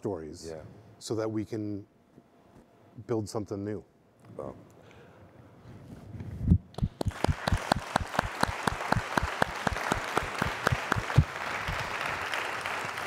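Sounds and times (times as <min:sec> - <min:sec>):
hand clapping: 0:06.7 - 0:13.0
applause: 0:06.8 - 0:13.0.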